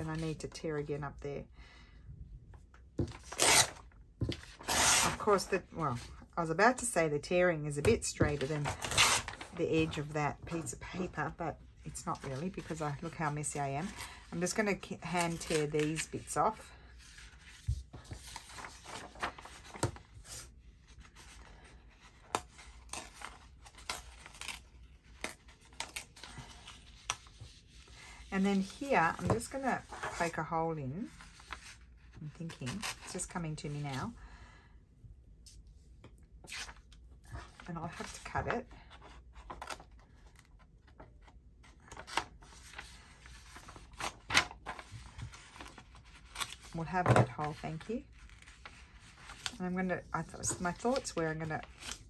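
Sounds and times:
paper tearing: 3.2 - 3.8, 4.5 - 5.3
paper rustling: 17.0 - 30.4.

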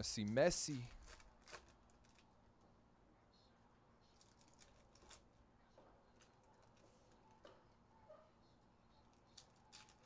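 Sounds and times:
foil pack rustling: 0.2 - 2.2.

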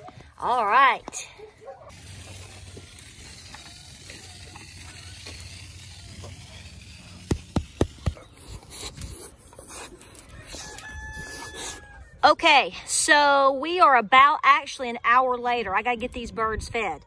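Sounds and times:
footsteps on mud and grass: 2.0 - 8.3.

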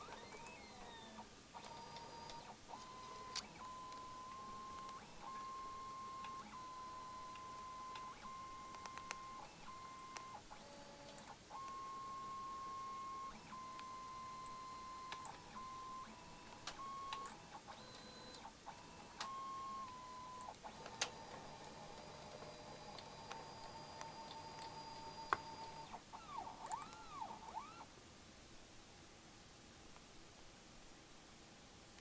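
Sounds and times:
small clicks: 1.6 - 6.6, 7.2 - 11.8, 13.5 - 15.4, 19.2 - 27.6.

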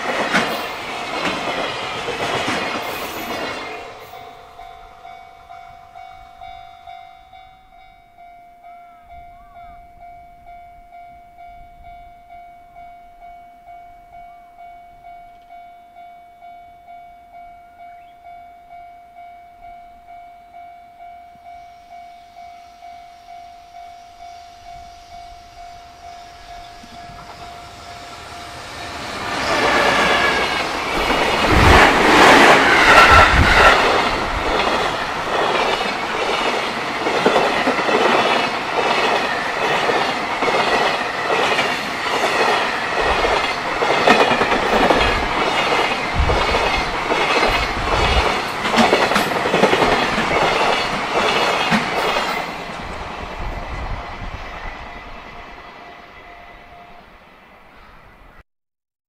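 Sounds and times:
wheels clacking over rail joints: 0.0 - 4.2, 26.6 - 53.0
train rushing past: 0.0 - 7.8, 22.2 - 58.4
wind gusts from train: 0.0 - 8.4, 19.2 - 58.4
level-crossing bell clanging: 0.0 - 52.9.

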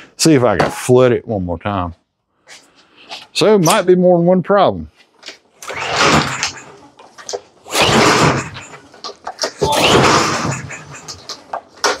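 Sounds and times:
mower engine turning over: 5.6 - 6.5
recoil starter whirring: 5.6 - 6.6.

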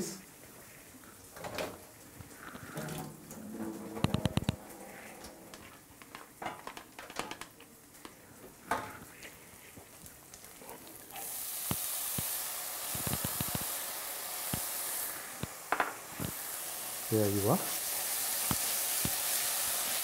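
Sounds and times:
food sizzling in a pan: 7.8 - 20.0.

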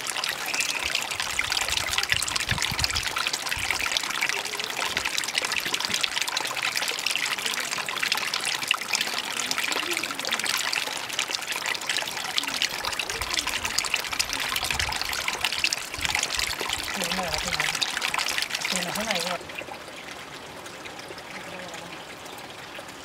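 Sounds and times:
water trickling: 0.0 - 23.0.

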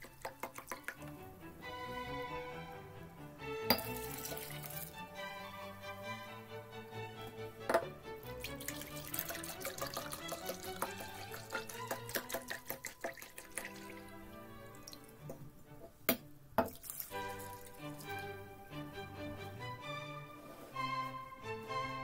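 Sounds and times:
milk pouring and splashing: 0.0 - 1.2, 3.7 - 5.0, 8.2 - 15.3, 16.6 - 18.4
background music: 0.0 - 22.0.

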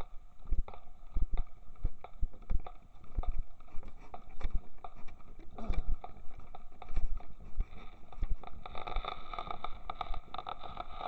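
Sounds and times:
hooves thudding on soft ground: 0.1 - 8.8.

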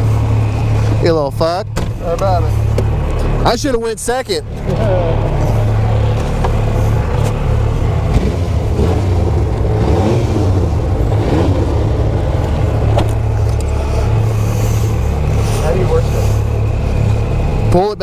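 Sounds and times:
engine revving from inside cab: 4.5 - 17.9.

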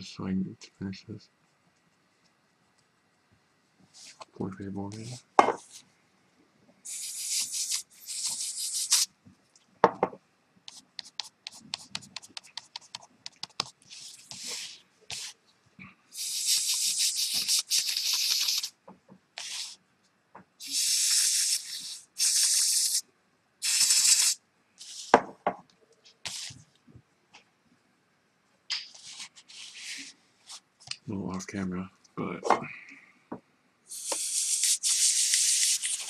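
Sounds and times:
aerosol spray can hissing: 6.9 - 9.1, 16.1 - 18.7, 19.4 - 19.8, 20.6 - 23.0, 23.6 - 25.2, 33.9 - 36.0
spray can rattling clicks: 16.5 - 18.7.

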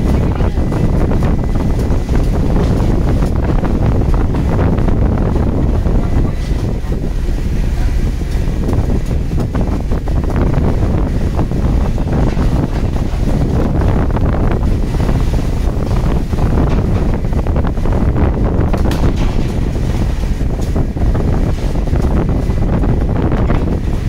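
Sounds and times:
boat engine low rumble: 0.0 - 24.0
wind buffeting microphone: 0.0 - 24.0
knocks and clatter on deck: 18.8 - 20.8.

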